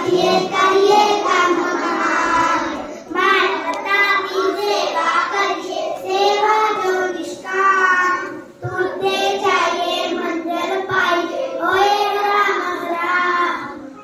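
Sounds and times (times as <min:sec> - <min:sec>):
child singing into a microphone: 0:00.0 - 0:14.0.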